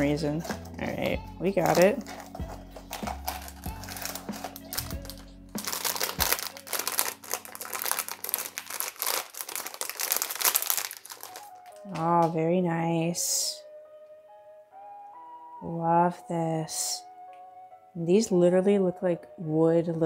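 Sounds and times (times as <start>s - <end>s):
foil bag crinkling: 0.0s - 12.3s.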